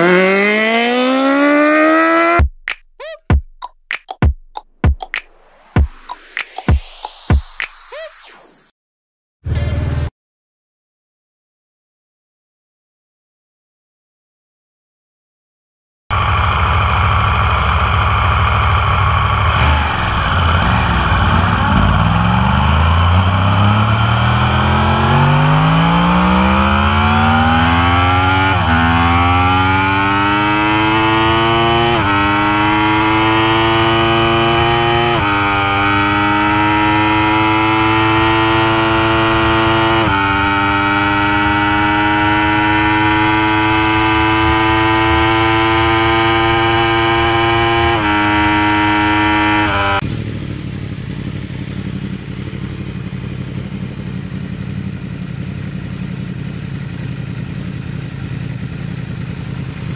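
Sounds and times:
motorcycle engine accelerating hard: 0.0s - 2.4s, 9.4s - 10.1s, 16.1s - 59.9s.

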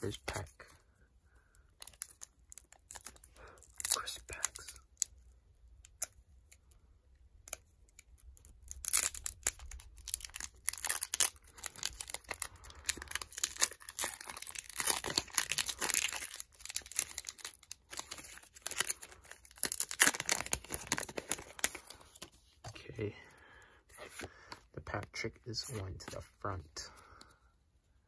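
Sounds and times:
foil wrapper crinkling and tearing: 1.8s - 5.2s, 7.5s - 22.3s.

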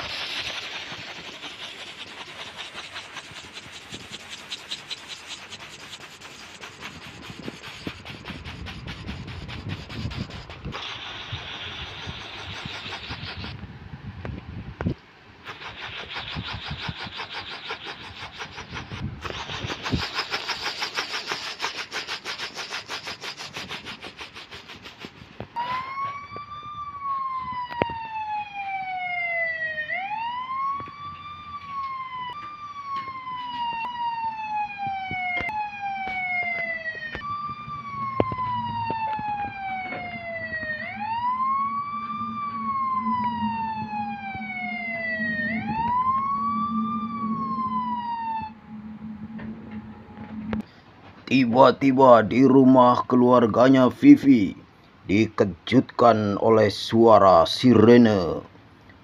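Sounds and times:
helicopter rotor chop: 0.0s - 13.6s, 15.5s - 25.8s, 35.3s - 50.6s
police siren wailing: 25.6s - 50.7s
low steady hum: 36.5s - 51.3s.

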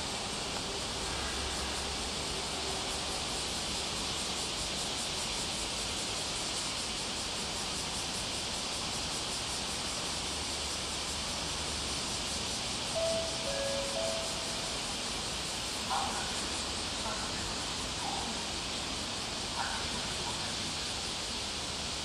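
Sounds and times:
cicada chorus: 0.0s - 22.0s
station chime: 13.0s - 15.0s.

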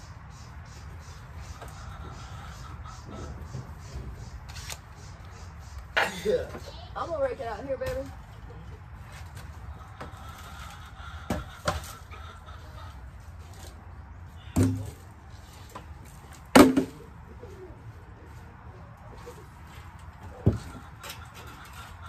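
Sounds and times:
plastic crates knocking: 16.6s - 17.0s.

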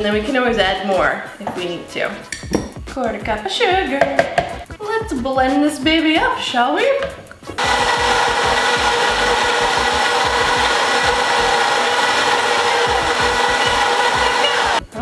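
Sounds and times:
blender crushing ice: 7.6s - 14.8s.

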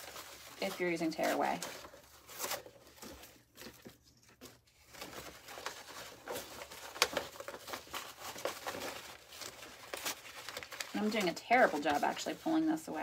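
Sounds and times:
paper crinkling and tearing: 0.0s - 13.0s.

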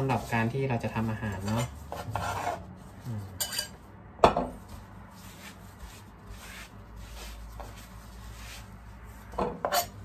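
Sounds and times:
paper towel rubbing board: 4.6s - 9.3s.

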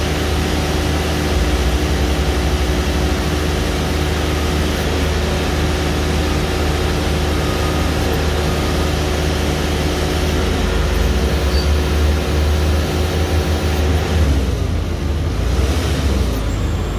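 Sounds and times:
drill rig engine hum: 0.0s - 16.9s
hydraulic whine: 0.0s - 16.9s.

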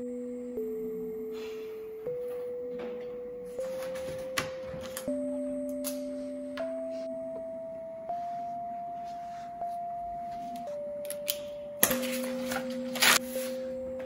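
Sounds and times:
soft bell-like melody: 0.0s - 14.0s
paper rustling: 3.5s - 5.1s, 11.8s - 13.7s.

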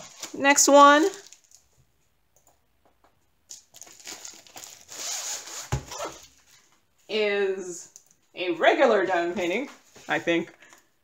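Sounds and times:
packaging crinkling: 0.0s - 1.8s, 3.5s - 6.6s.

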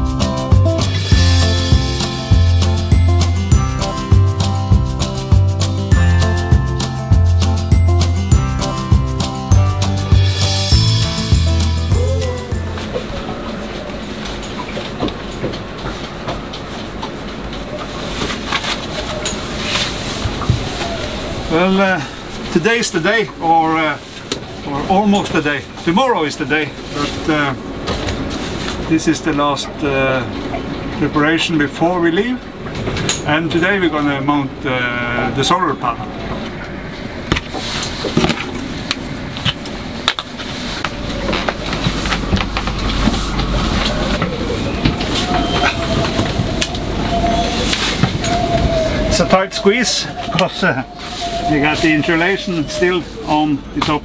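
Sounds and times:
steady low rumble: 0.0s - 15.0s, 24.5s - 48.2s.

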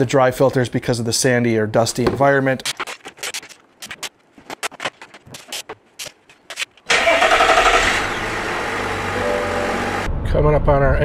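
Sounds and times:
diesel engine starting and idling: 6.9s - 10.2s.

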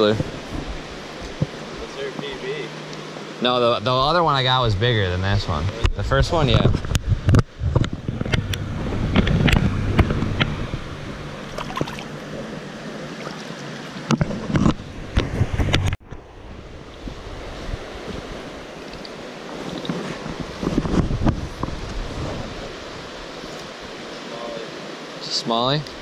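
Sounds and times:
river water rushing: 0.0s - 4.6s, 8.6s - 15.2s, 16.4s - 26.0s
wind buffeting microphone: 4.0s - 13.0s, 14.0s - 24.0s
sharp splashes and knocks: 6.7s - 12.5s, 13.2s - 16.2s.

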